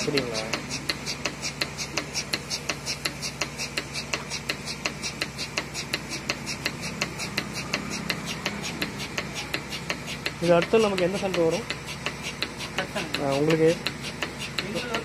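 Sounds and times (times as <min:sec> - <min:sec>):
milking machine pulsator clicking: 0:00.0 - 0:15.0
vacuum pump humming: 0:00.0 - 0:15.0.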